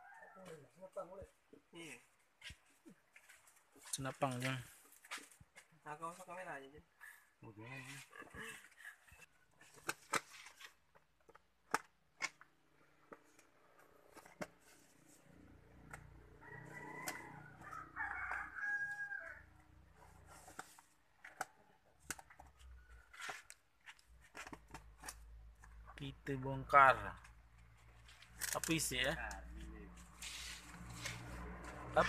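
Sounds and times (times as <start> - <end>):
rooster crowing: 0.0 - 0.6, 16.3 - 19.6
knife scraping packing tape: 30.2 - 31.3.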